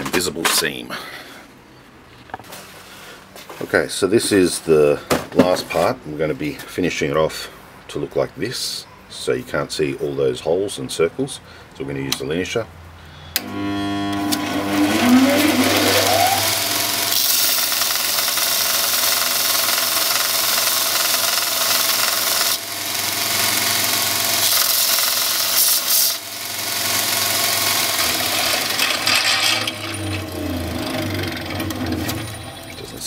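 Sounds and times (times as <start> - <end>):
belt sander whine: 13.4 - 18.2, 21.8 - 33.0
metal grinding against sanding belt: 14.4 - 18.3, 27.0 - 33.0.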